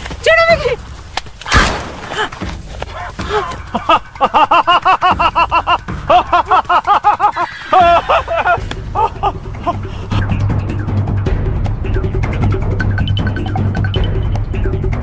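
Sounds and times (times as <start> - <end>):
background music: 0.0 - 15.0
person laughing loudly: 2.0 - 10.1.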